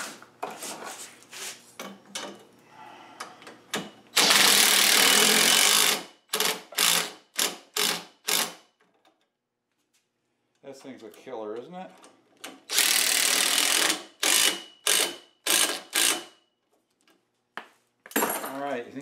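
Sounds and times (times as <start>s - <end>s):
cordless drill boring pipe: 4.2s - 8.5s, 12.7s - 16.3s.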